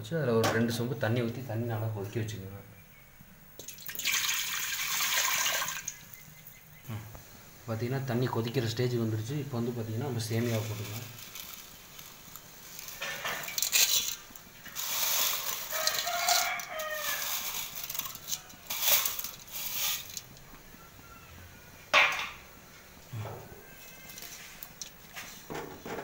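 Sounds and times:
rooster crowing: 0:15.5 - 0:18.9, 0:20.4 - 0:22.0.

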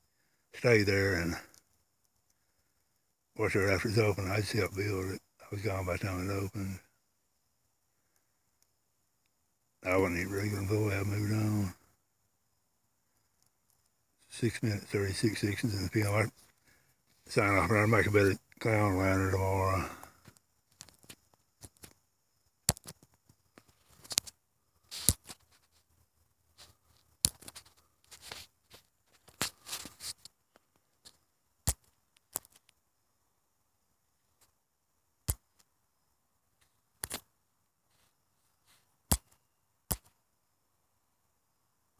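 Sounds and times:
brief rustles: 0:26.6 - 0:30.3.

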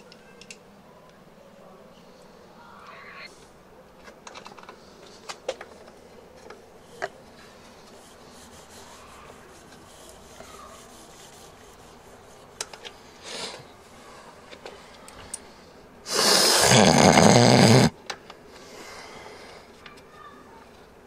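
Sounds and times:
hands rubbing on brake caliper: 0:07.0 - 0:12.7.

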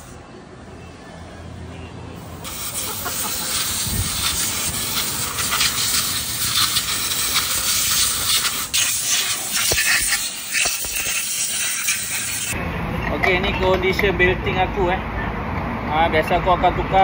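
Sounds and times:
compressed air hissing: 0:02.4 - 0:12.6.

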